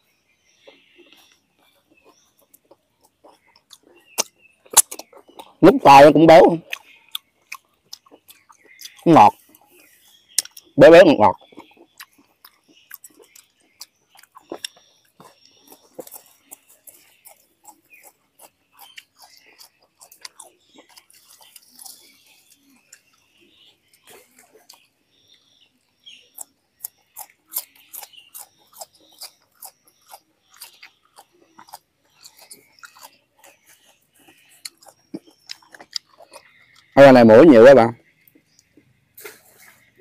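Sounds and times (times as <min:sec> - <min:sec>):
person chewing leaves: 0:00.0 - 0:40.0.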